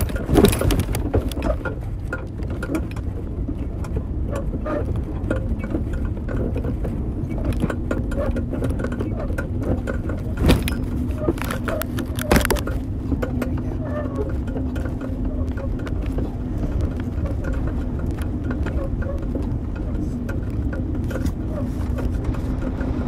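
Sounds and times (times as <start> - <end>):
bicycle clicks and rattles: 0.0 - 23.0
wind on microphone: 13.8 - 23.0.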